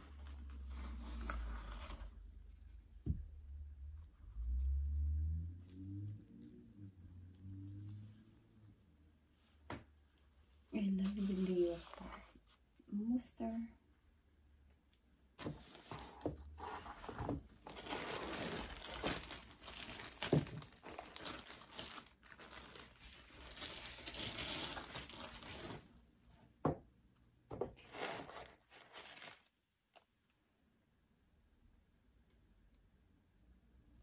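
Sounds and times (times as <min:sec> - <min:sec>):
paper and plastic crinkling: 0:15.6 - 0:25.9, 0:27.8 - 0:30.1.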